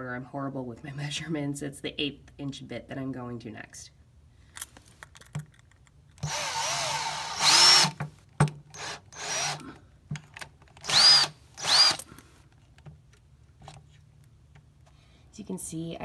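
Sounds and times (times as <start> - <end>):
cordless drill motor whining: 6.2 - 8.0, 8.7 - 9.7, 10.8 - 12.1.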